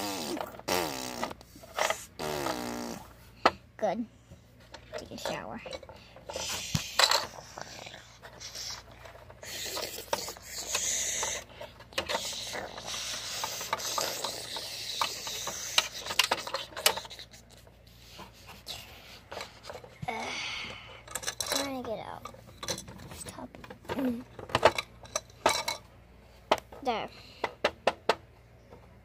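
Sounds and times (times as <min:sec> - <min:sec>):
plastic toy pieces clicking: 0:09.4 - 0:17.2.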